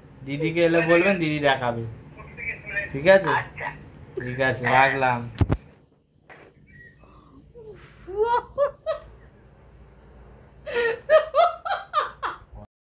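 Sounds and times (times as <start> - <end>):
woman laughing: 6.7 - 9.2, 10.6 - 12.5.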